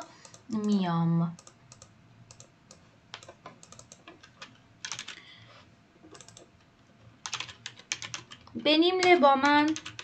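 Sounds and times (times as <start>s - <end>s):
computer keyboard and mouse clicks: 1.4s - 5.2s, 6.0s - 6.6s, 7.2s - 10.0s.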